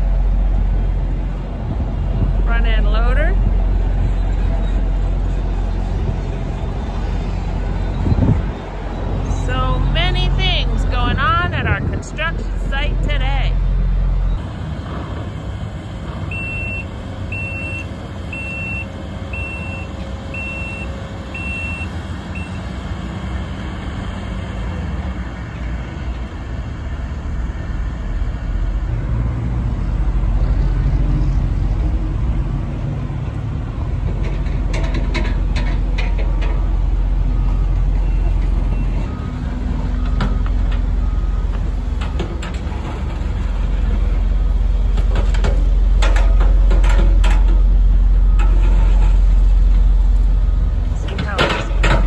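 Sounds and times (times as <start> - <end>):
diesel machinery engine rumble: 0.0 - 52.0
backup alarm beeping: 16.3 - 22.6.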